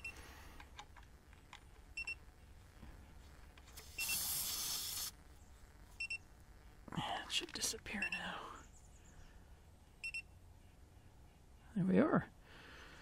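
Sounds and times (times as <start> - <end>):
air hissing from valve stem: 3.8 - 5.2.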